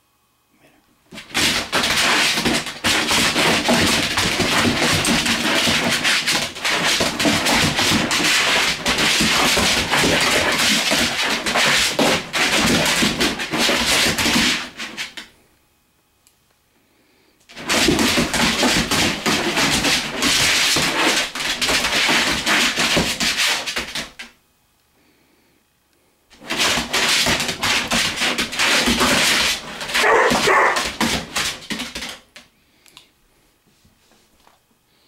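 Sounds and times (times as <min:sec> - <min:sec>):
dog barking excitedly: 0:29.0 - 0:31.4.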